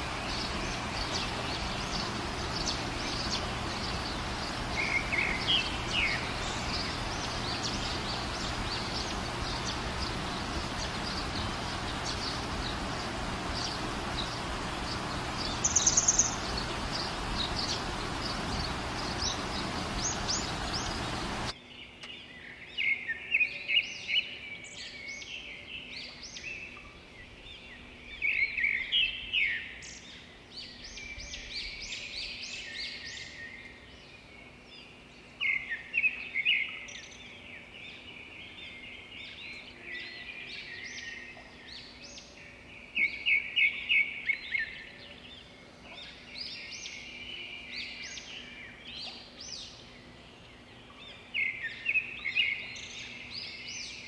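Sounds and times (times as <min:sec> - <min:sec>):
birds chirping and singing: 0:00.0 - 0:54.0.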